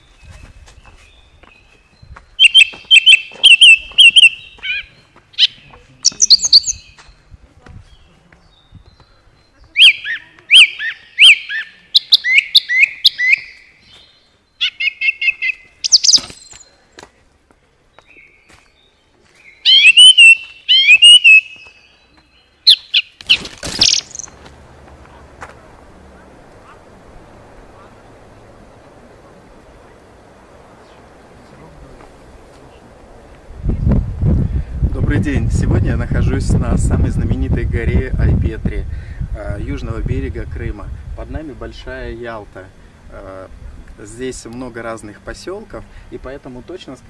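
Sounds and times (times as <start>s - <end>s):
songbird singing: 0.0s - 47.0s
faint steady hiss: 21.4s - 47.0s.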